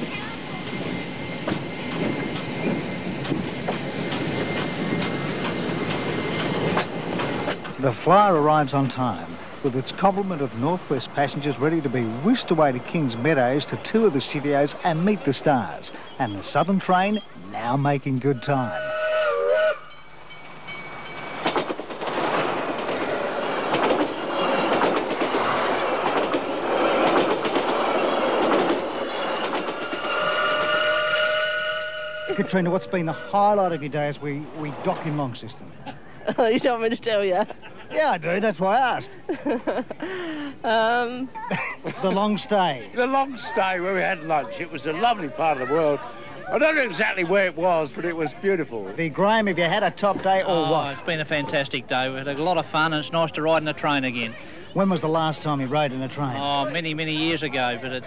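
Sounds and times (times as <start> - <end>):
train clanks and clicks: 0.0 - 17.2, 19.9 - 31.2
steam locomotive rushing: 0.0 - 41.2, 42.1 - 58.0
train whistle: 18.6 - 20.2, 29.2 - 33.9.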